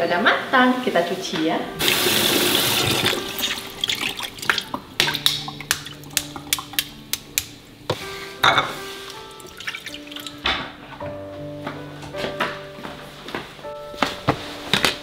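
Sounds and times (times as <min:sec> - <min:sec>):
water splashing: 0:01.8 - 0:07.0, 0:09.4 - 0:10.4
eggs clicking against metal pan: 0:05.0 - 0:07.6.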